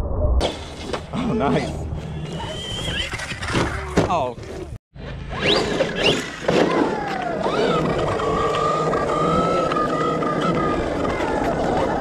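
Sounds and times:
electric motor whining: 5.3 - 12.0.

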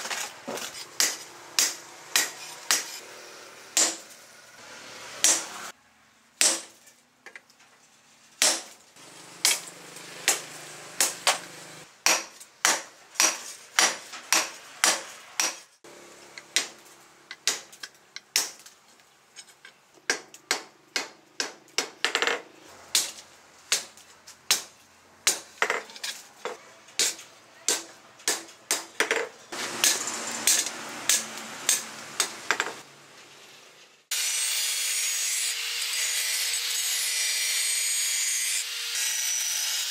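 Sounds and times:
hammer striking hot steel on anvil: 1.0 - 3.0, 3.8 - 4.2, 5.2 - 5.5, 29.8 - 32.7.

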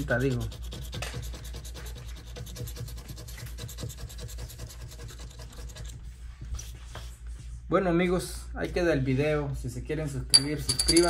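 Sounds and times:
plastic tool scraping lottery ticket: 0.0 - 6.0.

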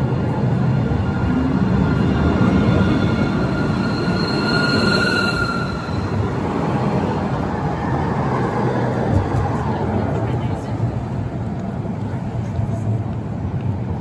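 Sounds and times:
tram wheels rumbling on rail: 0.0 - 14.0
high-pitched whine: 0.3 - 7.6.

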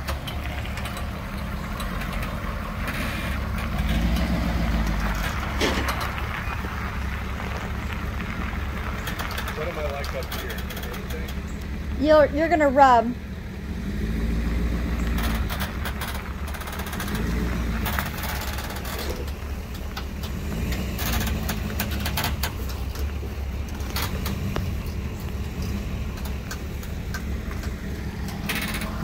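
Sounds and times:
clicks and crackles: 0.0 - 11.8, 14.9 - 29.0
pickup truck engine rumble: 0.0 - 29.0.

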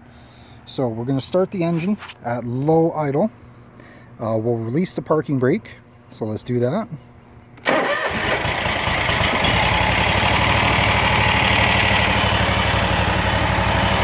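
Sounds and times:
mower engine cranking and idling: 7.6 - 14.0.

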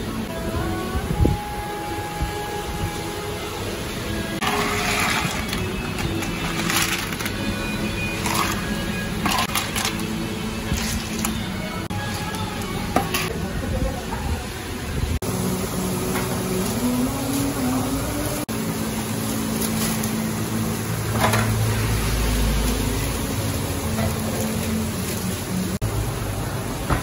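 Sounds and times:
metal trays and utensils clinking: 4.4 - 13.4.

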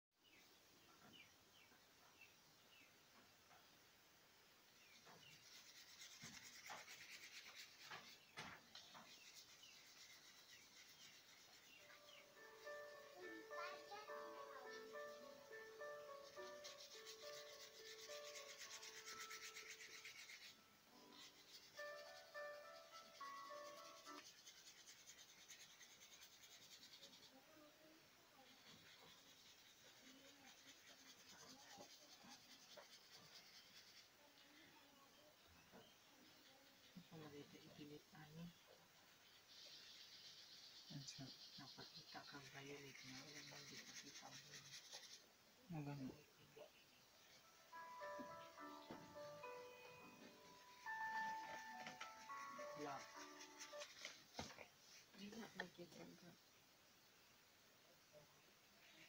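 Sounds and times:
paintbrush scrubbing on paper: 4.8 - 35.1, 35.9 - 46.2, 50.2 - 56.2.

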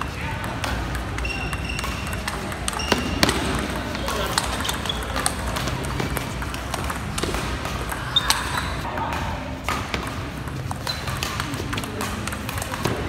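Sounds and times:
table tennis ball clicking: 0.4 - 8.8.

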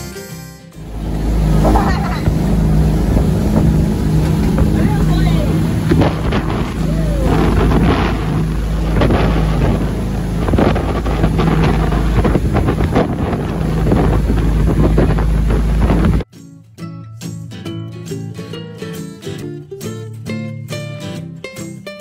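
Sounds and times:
boat engine running: 0.8 - 16.2
water rushing past hull: 0.8 - 16.2
wind buffeting microphone: 0.8 - 16.2.

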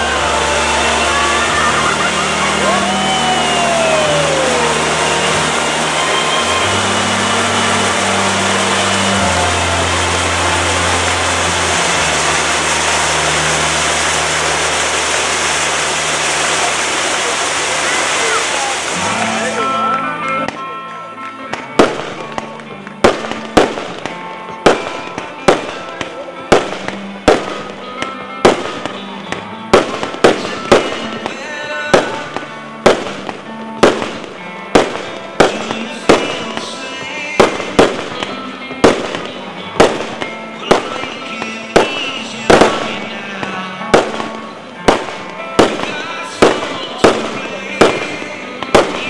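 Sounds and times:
firework wheel hissing: 0.0 - 19.6
fireworks bursting with sharp bangs: 0.0 - 20.6, 21.5 - 49.0
music playing: 0.0 - 49.0.

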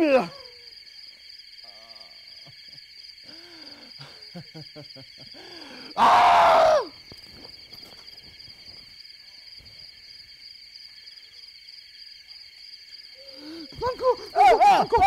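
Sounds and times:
insects chirring: 0.0 - 15.0
short falling cry: 5.9 - 7.0.

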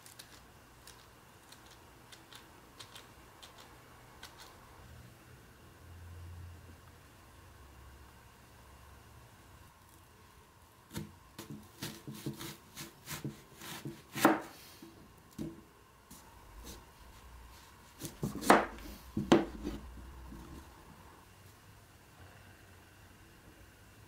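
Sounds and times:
knife chopping on plastic board: 10.9 - 14.5, 18.0 - 19.8
knife slicing vegetables: 10.9 - 14.8, 16.1 - 20.5.

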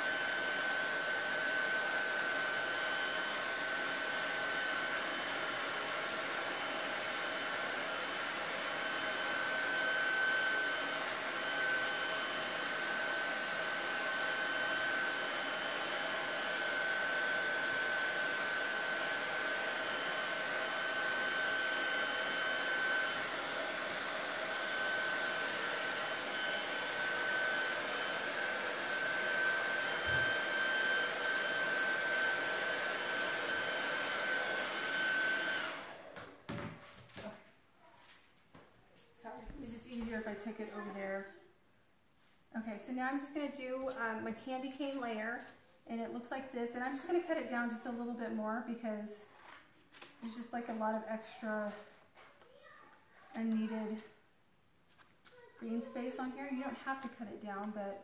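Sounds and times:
blow dryer running: 0.0 - 37.3.

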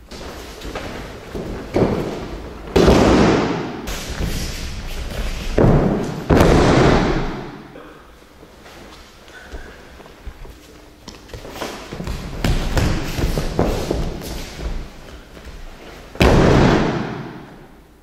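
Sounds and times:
bodies thudding on mats: 0.1 - 7.6, 11.1 - 17.6.

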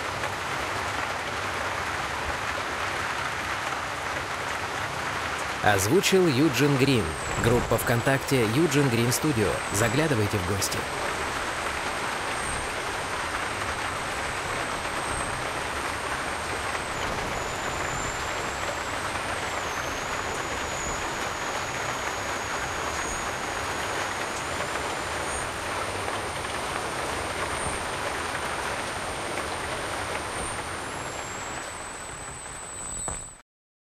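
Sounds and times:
steady rushing noise: 5.6 - 32.2.

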